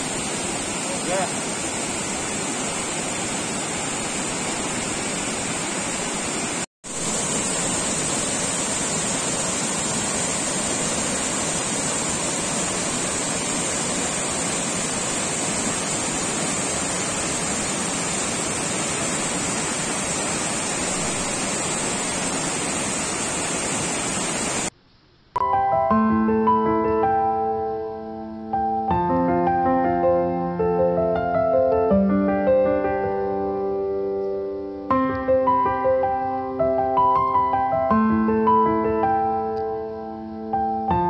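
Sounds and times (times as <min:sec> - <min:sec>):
waterfall rushing: 0:00.0 - 0:24.7.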